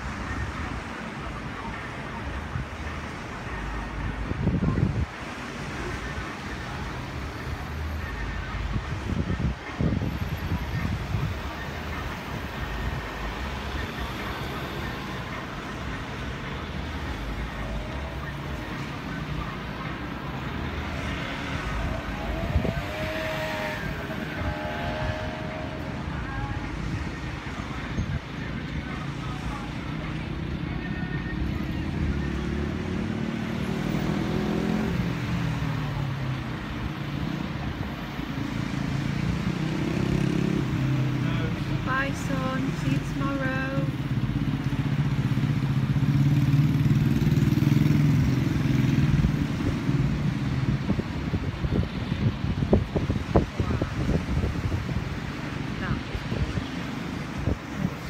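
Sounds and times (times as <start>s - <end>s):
wind rumbling on microphone: 0.0s - 30.8s, 47.9s - 58.0s.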